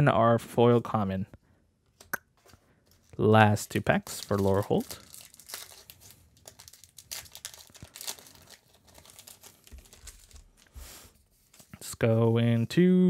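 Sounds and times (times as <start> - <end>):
foil wrapper tearing and crinkling: 4.0 - 10.8.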